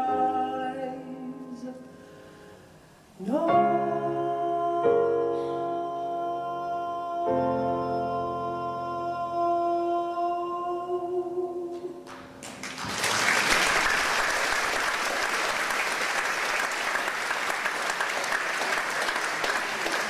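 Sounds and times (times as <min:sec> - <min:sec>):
audience applauding: 0:12.0 - 0:20.0.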